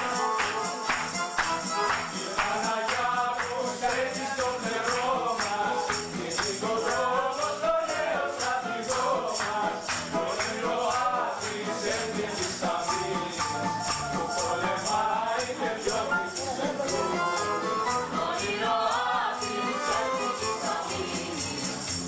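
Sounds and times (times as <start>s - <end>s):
keyboard accompaniment: 0.0s - 3.3s, 8.7s - 22.0s
tambourine-like jingling beat: 0.0s - 22.0s
person singing: 2.1s - 21.9s.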